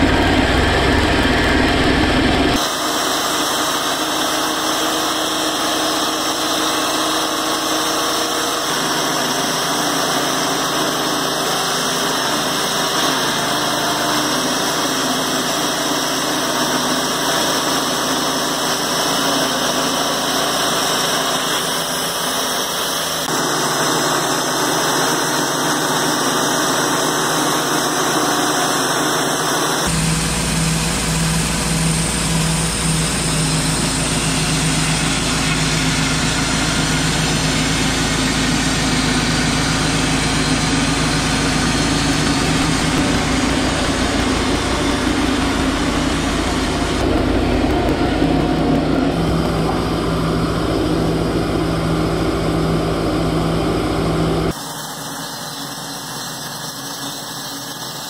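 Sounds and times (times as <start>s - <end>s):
band sawmill cutting log: 0.0s - 58.0s
steady low hum: 29.8s - 54.6s.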